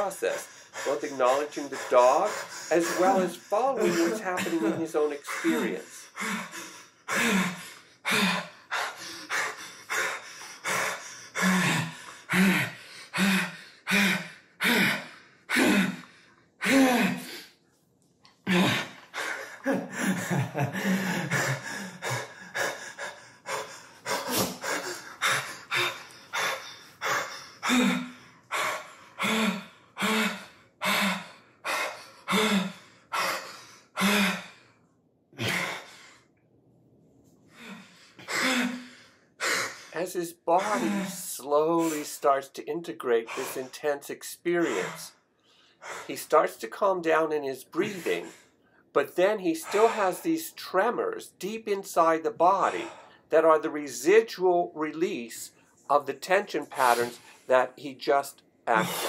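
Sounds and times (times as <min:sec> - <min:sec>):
man gasping and sobbing: 0:00.0 - 0:17.6, 0:18.4 - 0:34.8, 0:35.4 - 0:36.3, 0:37.5 - 0:42.5, 0:43.1 - 0:50.6, 0:52.6 - 0:53.5, 0:56.6 - 0:59.0
man crying out: 0:02.2 - 0:05.9, 0:40.5 - 0:41.2.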